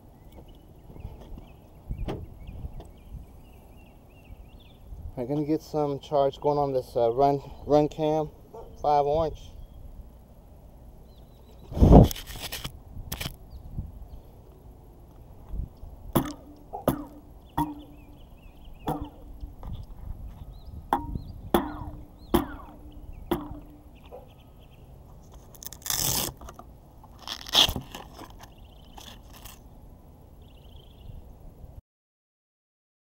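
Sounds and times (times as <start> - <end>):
handling scrapes on microphone: 11.6 - 13.4, 25.1 - 29.6
camera knocks with hollow ring: 16.2 - 18.0, 20.9 - 23.7.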